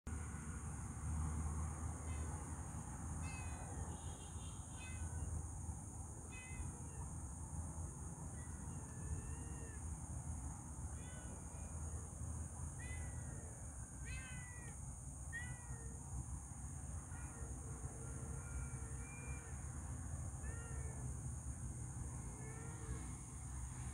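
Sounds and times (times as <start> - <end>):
cat meowing: 14.1 - 14.8.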